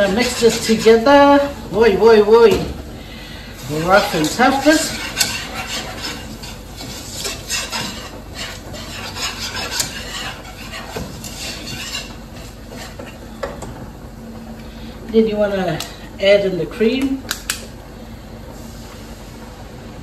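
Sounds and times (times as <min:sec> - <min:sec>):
whisk scraping a pan: 0:00.0 - 0:02.3, 0:03.6 - 0:13.3
whisk clicking against pan: 0:04.0 - 0:13.1.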